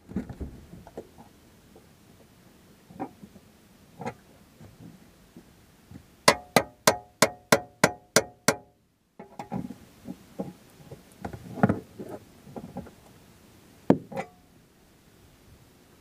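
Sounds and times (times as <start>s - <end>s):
tire iron striking metal: 6.3s - 9.4s.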